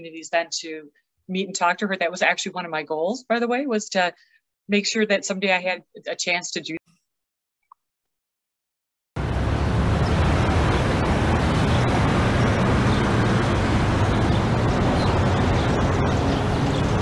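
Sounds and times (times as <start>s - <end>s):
city street traffic: 9.2s - 17.0s.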